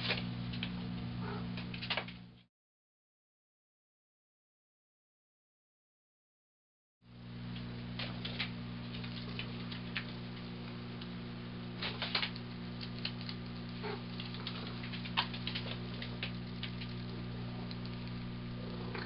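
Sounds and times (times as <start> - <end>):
low electrical hum: 0.0 - 2.5, 7.0 - 19.0.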